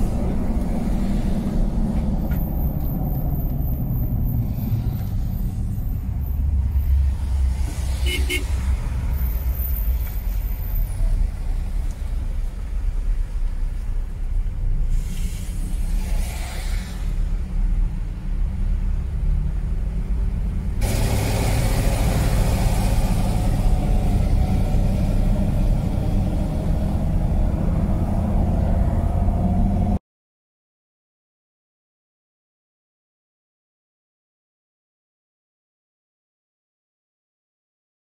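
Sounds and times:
engine and tyres rumbling: 0.0s - 30.0s
hiss: 14.8s - 17.4s, 20.8s - 24.1s.

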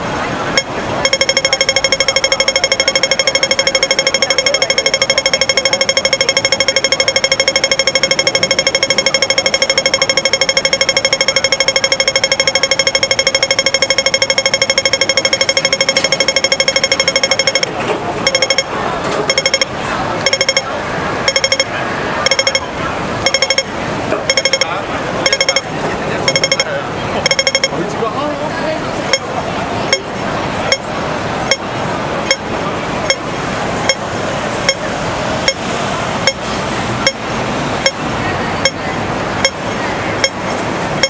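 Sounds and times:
street and crowd noise: 0.0s - 41.0s
crossing signal ticking: 0.5s - 27.9s, 29.1s - 30.1s, 30.7s - 30.9s, 31.5s - 31.7s, 32.3s - 32.5s, 33.9s - 34.1s, 34.7s - 35.6s, 36.2s - 36.4s, 37.0s - 37.2s, 38.6s - 38.8s, 39.4s - 39.6s, 40.2s - 41.0s.

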